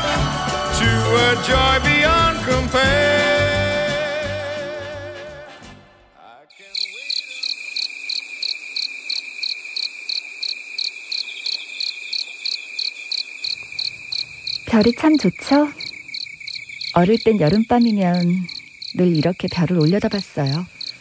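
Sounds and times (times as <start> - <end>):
song: 0.0 - 6.1
crickets chirping: 6.5 - 21.0.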